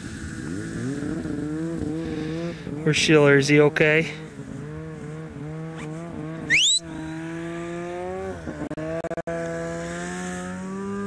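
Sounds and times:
snowmobile engine idling: 0.0 - 8.7
high whistle-like rising tone: 6.5 - 7.2.

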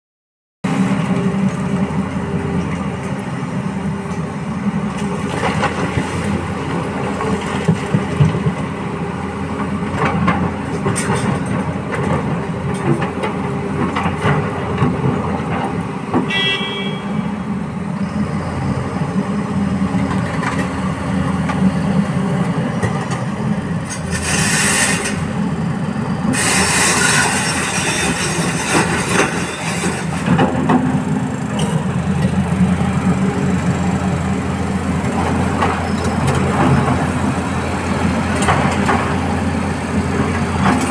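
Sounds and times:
diesel engines running: 0.7 - 40.9
high whistle: 16.3 - 17.3.

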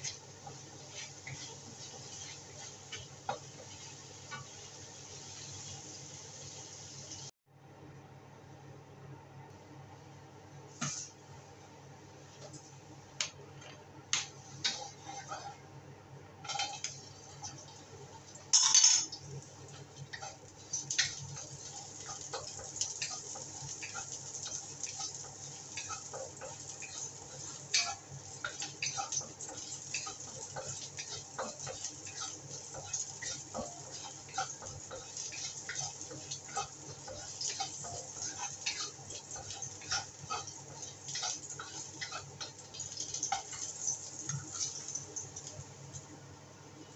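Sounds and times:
utensils clicking on pan: 0.0 - 4.6, 14.2 - 15.6, 16.4 - 17.7, 18.5 - 45.6
oil sizzling in a wok: 0.0 - 7.4, 14.2 - 46.3.

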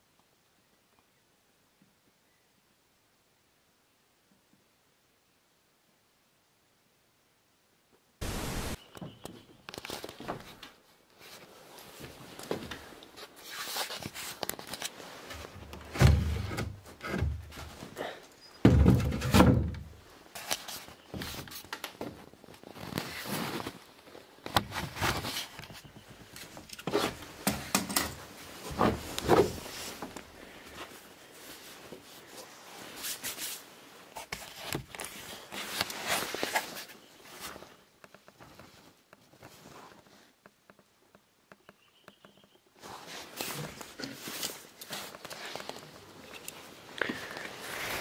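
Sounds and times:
knocks and scrapes on wooden beams: 9.0 - 18.0, 18.6 - 22.2, 24.5 - 30.2.

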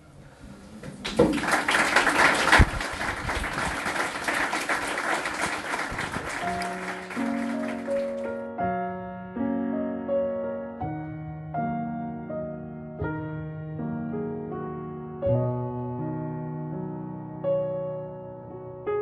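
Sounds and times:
audience applauding: 0.8 - 8.4
soft piano music: 6.3 - 19.0.

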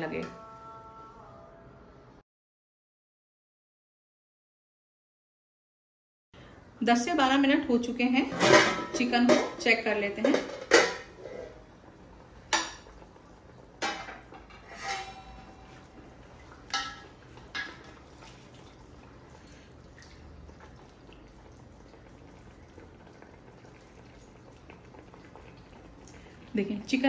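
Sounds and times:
metal pot and utensil clinking: 8.3 - 11.6, 13.8 - 18.3.

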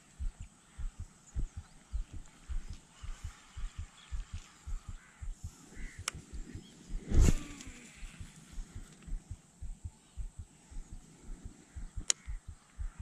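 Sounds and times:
dull low thumps: 0.0 - 13.0
fishing rod swishing: 7.0 - 7.9.

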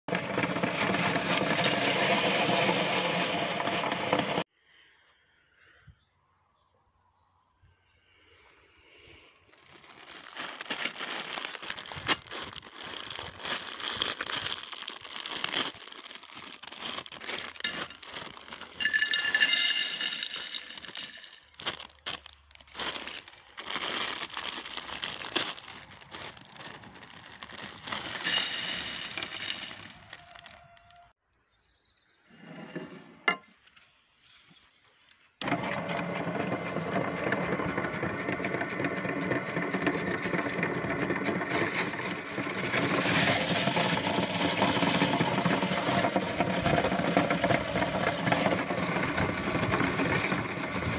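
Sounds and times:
plastic packets crinkling and tearing: 9.4 - 19.0, 19.7 - 31.1
pretzel sticks clattering onto plate: 17.6 - 21.5.

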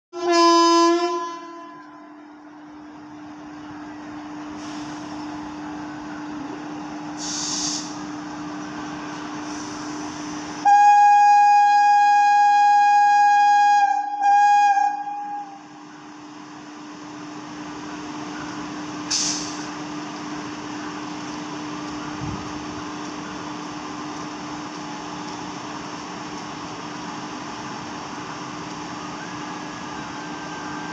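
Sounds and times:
locomotive horn blasts: 0.2 - 2.2, 10.6 - 15.6.

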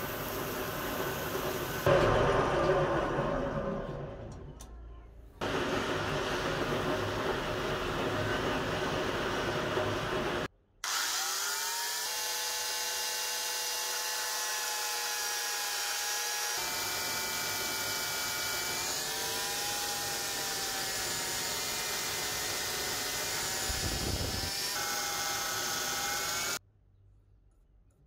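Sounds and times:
angle grinder high whine: 9.8 - 26.6.

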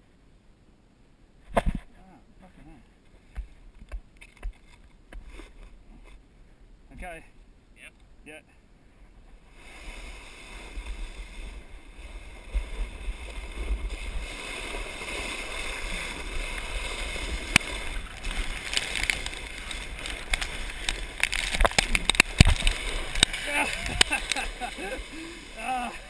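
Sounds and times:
board sliding on gravel: 9.4 - 25.4.

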